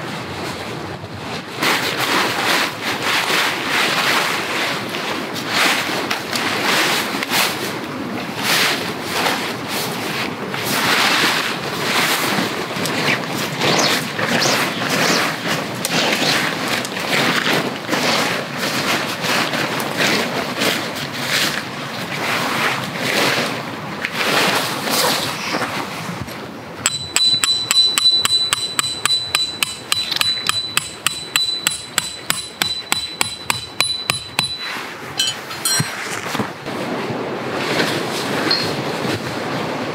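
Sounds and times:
hammer striking metal tent peg: 26.9s - 36.0s.

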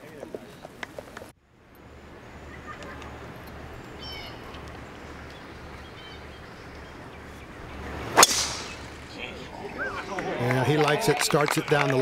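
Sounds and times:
golf club swing swoosh: 7.8s - 9.2s
sharp crack of ball impact: 8.1s - 9.0s.

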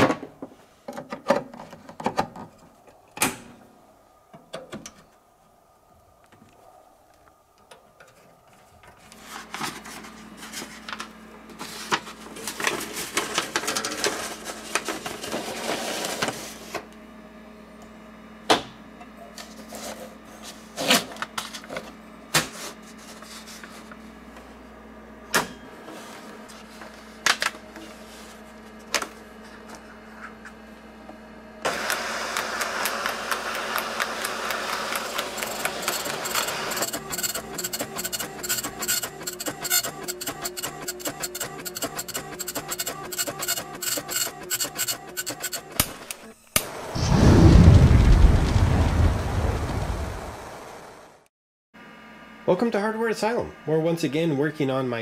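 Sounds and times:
paper clicking into printer: 31.7s - 45.9s
dot matrix printer printing: 31.7s - 46.3s.

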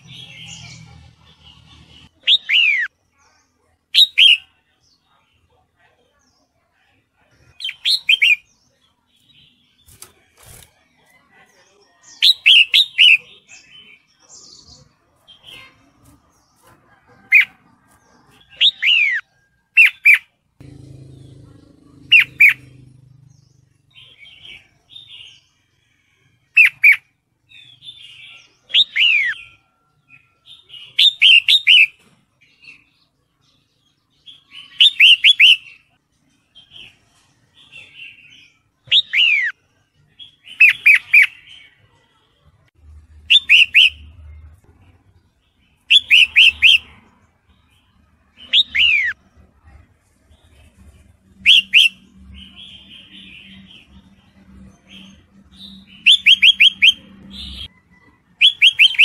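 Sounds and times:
soft bird chatter: 0.0s - 59.0s
bird whistled notes: 51.4s - 52.0s, 55.9s - 57.6s, 58.4s - 59.0s.

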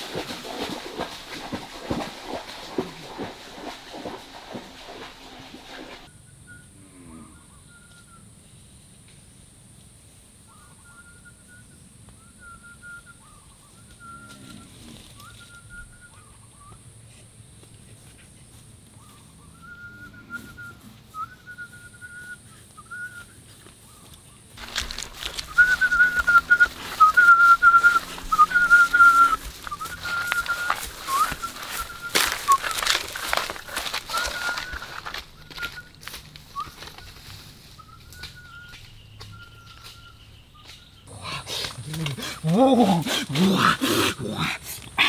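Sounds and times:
man whistling short notes: 25.5s - 32.8s.

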